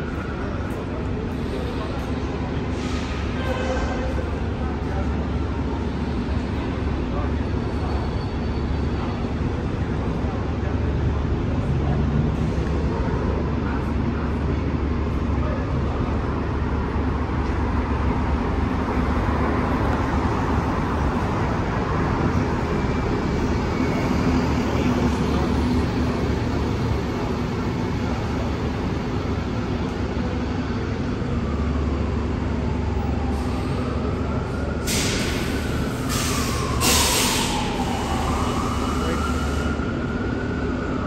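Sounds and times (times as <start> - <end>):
heavy vehicles rumbling: 0.0 - 41.0
sharp hiss of air: 34.9 - 37.6.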